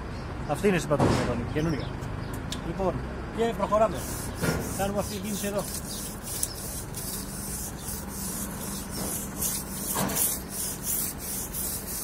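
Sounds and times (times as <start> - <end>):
stiff brush scrubbing concrete: 3.7 - 12.0.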